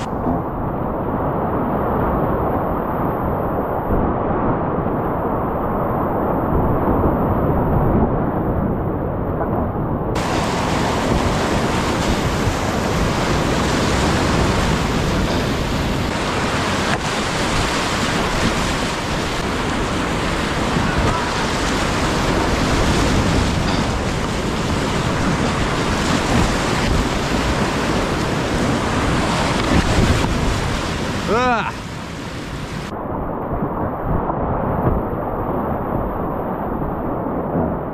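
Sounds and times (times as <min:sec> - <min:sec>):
whitewater rapids rushing: 0:10.2 - 0:32.9.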